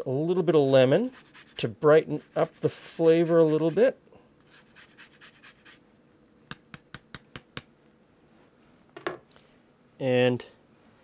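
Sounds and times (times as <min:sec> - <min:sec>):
lemon rind scraping on grater: 0:01.0 - 0:01.6, 0:02.2 - 0:03.8.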